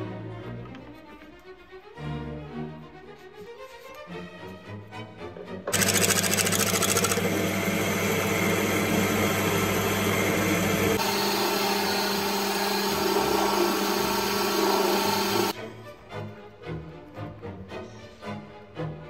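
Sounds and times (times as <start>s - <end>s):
drill cutting metal: 5.7s - 15.6s
lathe motor hum: 5.7s - 15.6s.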